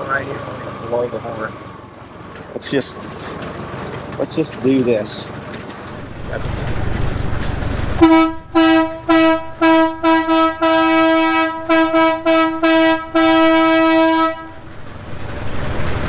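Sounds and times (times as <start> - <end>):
railcar horn toots: 7.9 - 14.6.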